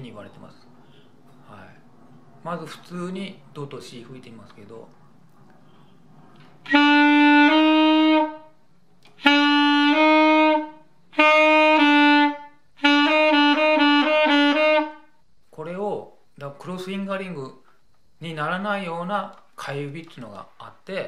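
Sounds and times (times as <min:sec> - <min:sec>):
saxophone playing two notes: 0:06.6 - 0:08.5, 0:09.1 - 0:15.1.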